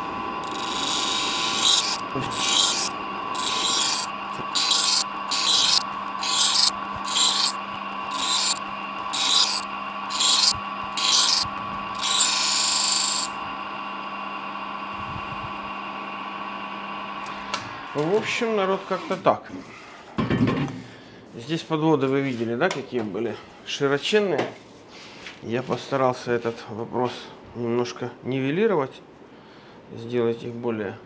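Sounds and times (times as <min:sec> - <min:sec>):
sharpening wheel motor hum: 0:00.0 - 0:13.6
knife blade grinding: 0:00.4 - 0:13.3.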